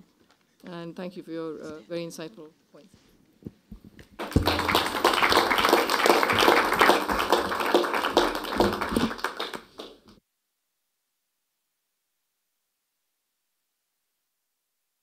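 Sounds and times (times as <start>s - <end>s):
audience applauding: 4.2s - 10.1s.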